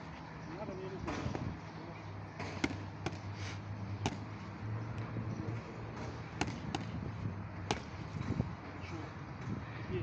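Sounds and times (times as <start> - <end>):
boxing gloves slapping focus mitts: 2.4 - 3.3, 4.0 - 4.4, 6.0 - 8.1.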